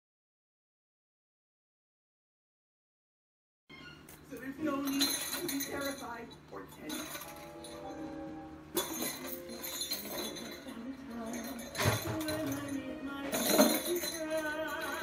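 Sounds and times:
music with jingling bells: 0:04.7 - 0:15.0.

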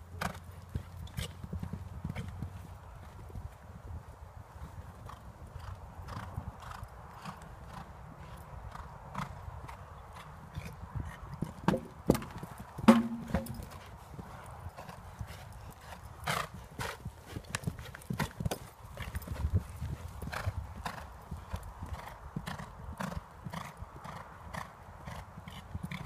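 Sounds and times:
horse hoofbeats on sand: 0:00.2 - 0:26.0
hoof thump on landing: 0:12.9 - 0:13.7.

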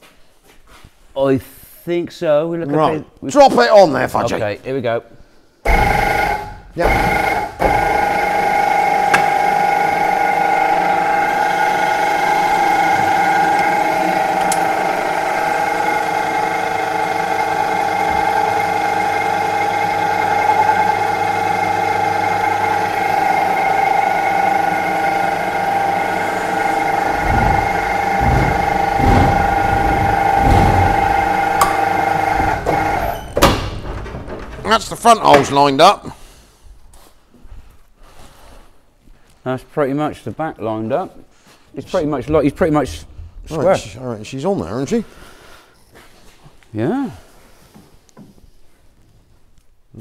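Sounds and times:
hydraulic lift whine: 0:05.6 - 0:34.1
low clunks: 0:26.6 - 0:35.7.

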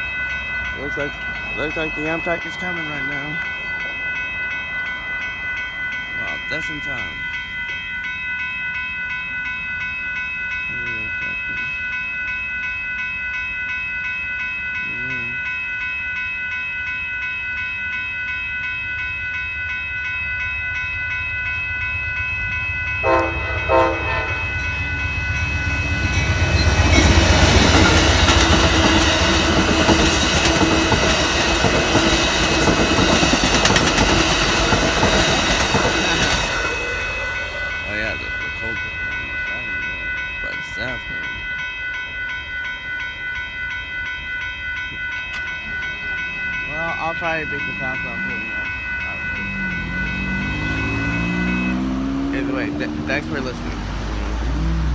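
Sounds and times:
crossing warning bells ringing: 0:00.0 - 0:54.9
train rumbling past: 0:15.4 - 0:54.9
locomotive horn blasts: 0:23.0 - 0:24.7, 0:49.7 - 0:53.2
wheels clattering over rails: 0:26.1 - 0:36.6.

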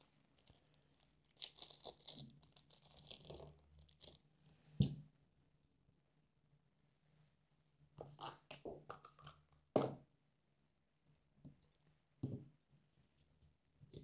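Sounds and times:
plastic bag crinkling: 0:00.4 - 0:04.1.

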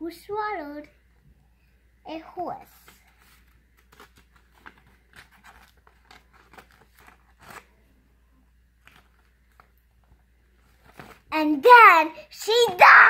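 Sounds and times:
paper rustling and crinkling: 0:02.7 - 0:07.8, 0:08.8 - 0:11.3.

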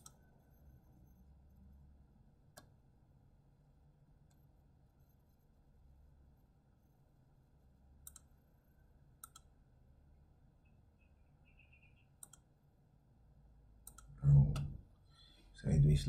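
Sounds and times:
computer mouse clicking: 0:00.0 - 0:00.2, 0:08.0 - 0:08.3, 0:09.2 - 0:09.5, 0:12.2 - 0:12.5, 0:13.8 - 0:14.7
faint room hum: 0:00.0 - 0:16.0.

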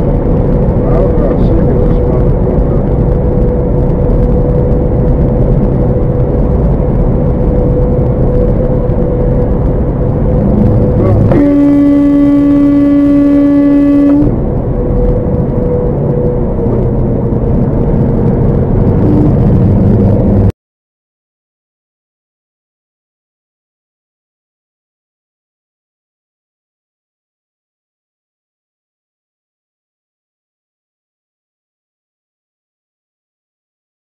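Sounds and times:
road and engine noise inside vehicle: 0:00.0 - 0:20.5
car horn held steady: 0:10.8 - 0:14.4.

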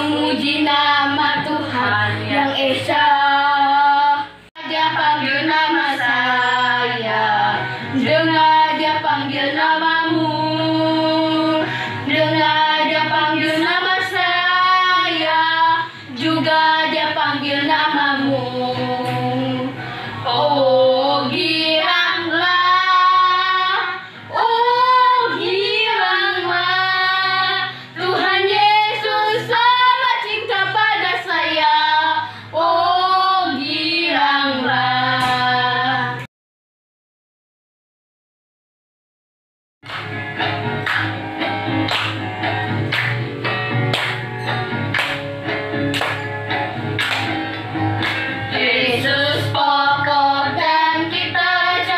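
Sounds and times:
children singing: 0:00.0 - 0:04.0, 0:04.6 - 0:19.4, 0:20.3 - 0:32.1, 0:48.5 - 0:51.9
musical backing: 0:00.0 - 0:36.3, 0:39.8 - 0:51.9
woman singing: 0:00.0 - 0:36.3, 0:48.5 - 0:51.9.

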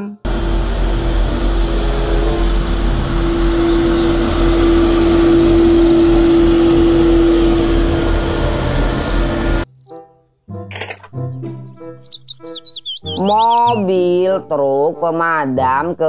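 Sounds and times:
constant hum: 0:00.1 - 0:09.7
street sweeper rushing noise: 0:00.3 - 0:09.7.

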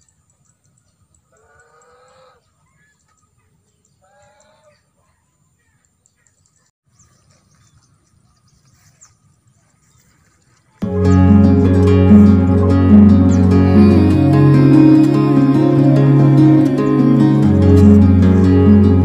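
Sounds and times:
loud guitar music: 0:10.8 - 0:19.0.

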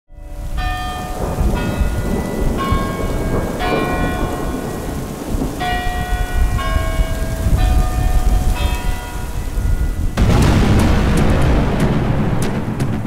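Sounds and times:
deep drum rumble: 0:10.2 - 0:13.0.

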